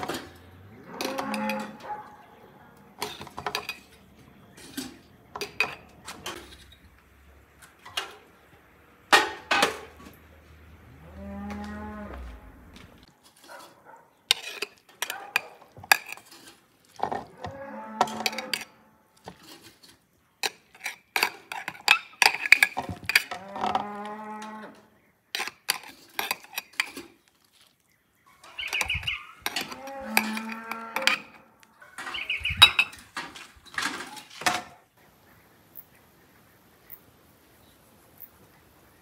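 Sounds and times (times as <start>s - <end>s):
cow mooing: 0.6s - 2.1s, 10.8s - 12.7s, 17.3s - 18.8s, 23.3s - 24.9s, 29.5s - 31.4s
spoon scraping pot and jar: 3.0s - 6.8s, 13.2s - 24.0s, 25.3s - 27.8s, 28.4s - 33.0s.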